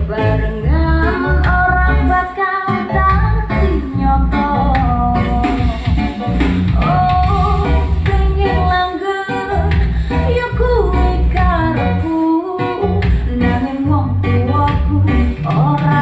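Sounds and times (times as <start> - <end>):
pop song with vocals loud speakers: 0.0 - 16.0.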